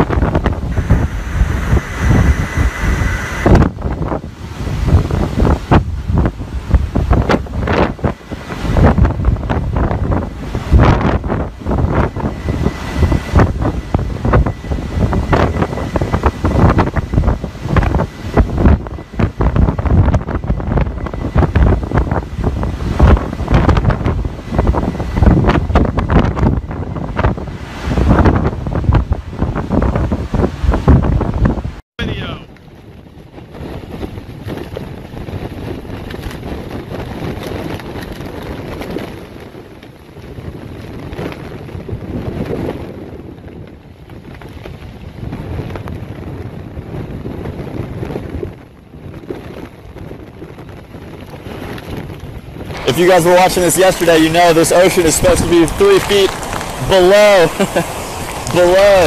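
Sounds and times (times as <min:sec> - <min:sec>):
rushing water: 0:00.0 - 0:31.2, 0:52.6 - 0:59.0
wind gusts hitting microphone: 0:00.0 - 0:59.0.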